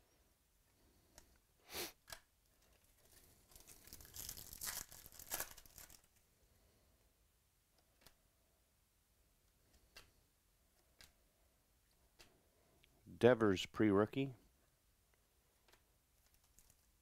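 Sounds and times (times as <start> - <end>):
foil wrapper tearing and crinkling: 3.0 - 6.1, 16.2 - 16.9.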